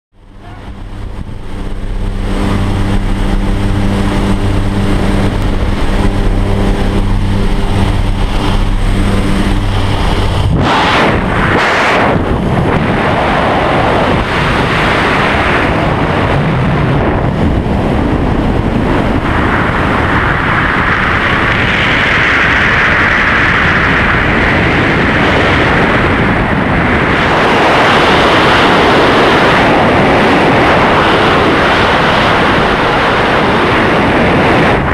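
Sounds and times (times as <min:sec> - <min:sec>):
airplane engine drone: 0:00.1 - 0:34.9
freefall wind rushing: 0:00.2 - 0:34.9.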